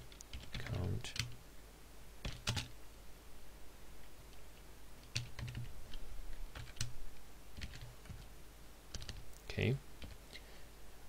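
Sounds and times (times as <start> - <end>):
computer keyboard typing: 0.0 - 1.4, 2.2 - 2.7, 5.0 - 6.9, 7.6 - 8.3, 8.9 - 9.3, 10.0 - 10.2.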